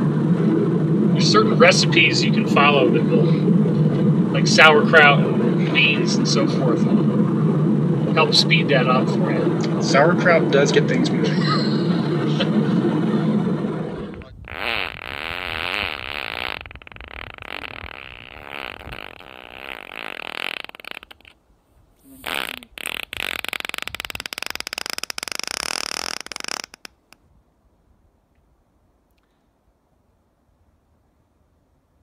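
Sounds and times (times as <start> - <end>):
fart sounds: 14.0 - 21.4, 22.0 - 27.2.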